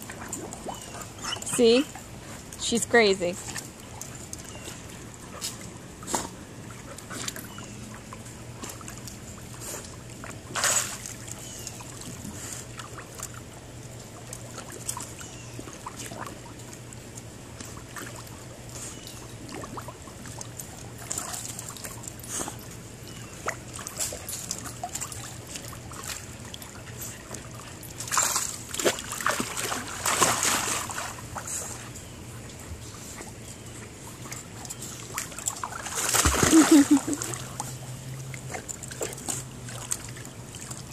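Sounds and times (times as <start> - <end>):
dogs splashing in pool water: 0.0 - 40.9
big splash: 35.9 - 37.2.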